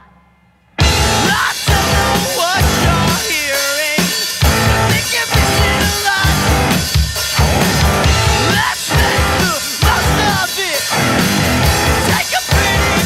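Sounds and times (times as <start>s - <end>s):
drum kit: 0.0s - 13.0s
electric guitar: 0.8s - 13.0s
singer shouting into microphone: 1.0s - 4.1s, 4.7s - 6.7s.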